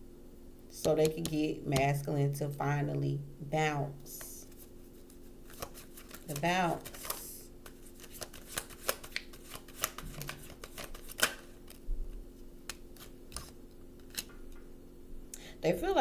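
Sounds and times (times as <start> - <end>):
cards being shuffled: 4.1 - 11.8, 12.6 - 14.4.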